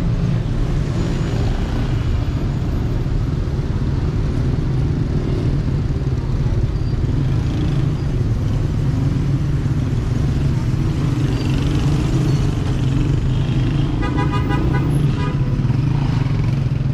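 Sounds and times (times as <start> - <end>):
road traffic rumble: 0.0 - 16.9.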